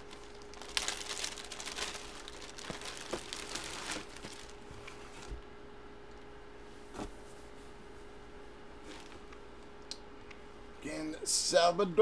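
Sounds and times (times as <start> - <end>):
plastic bag crinkling: 0.0 - 5.4, 8.9 - 9.3.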